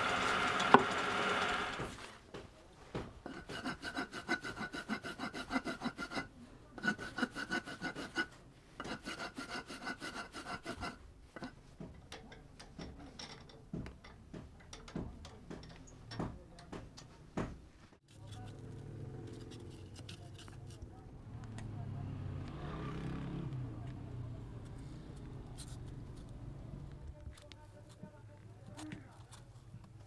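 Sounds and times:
rasp scraping wood: 3.2 - 11.6
scattered scrapes and taps: 3.2 - 17.1, 18.0 - 21.7, 24.6 - 30.0.

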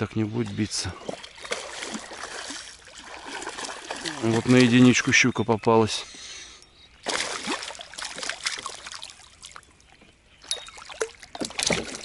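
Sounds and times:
fish splashing in water: 0.5 - 5.0, 7.0 - 9.7, 10.4 - 12.0.

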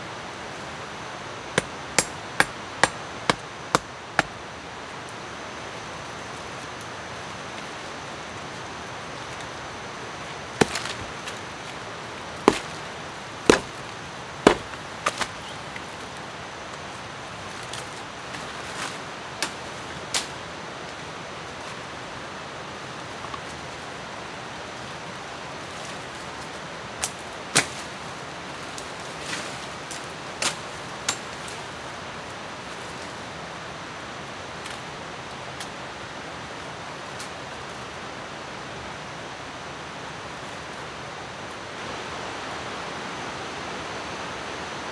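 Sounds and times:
machete chopping branches: 1.6 - 4.4, 10.6 - 11.4, 12.4 - 15.6, 27.0 - 27.9.

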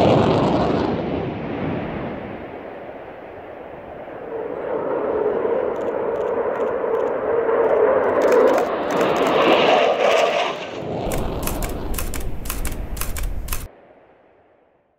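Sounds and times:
jet engines on low pass: 0.0 - 13.7
camera shutter bursts: 11.0 - 13.7
low rumble: 11.0 - 13.7.

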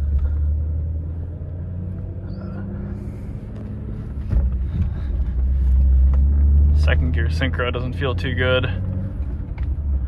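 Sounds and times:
car engine running: 0.0 - 10.0
road noise: 0.0 - 10.0
low thump: 4.2 - 4.9.

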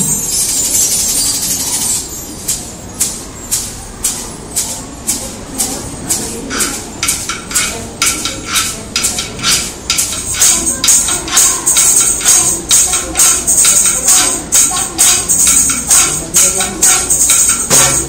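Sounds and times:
percussion band steady beat: 0.0 - 18.0
shakers: 0.0 - 18.0.

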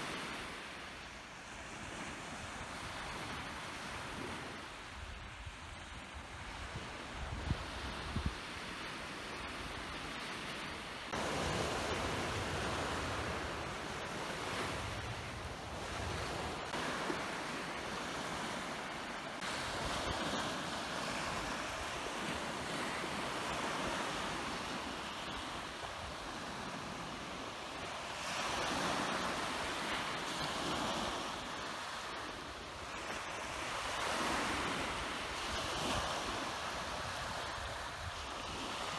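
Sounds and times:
sea waves breaking on beach: 0.0 - 38.9
wind rumbling on microphone: 1.9 - 10.2, 11.1 - 27.2.

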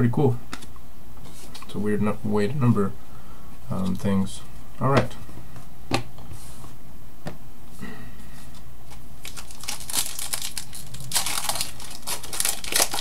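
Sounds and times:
foil wrapper crinkling: 9.2 - 13.0.

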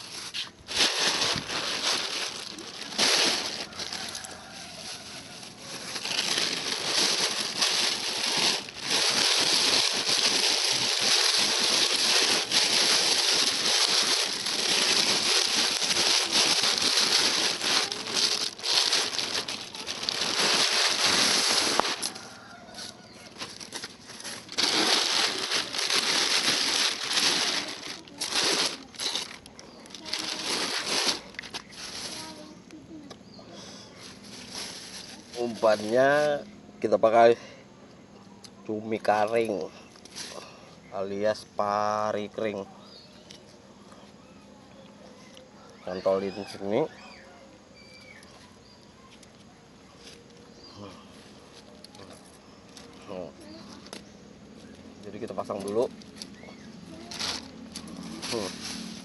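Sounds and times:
plastic sheeting rustling: 0.0 - 32.6, 34.0 - 36.2, 55.0 - 59.0.

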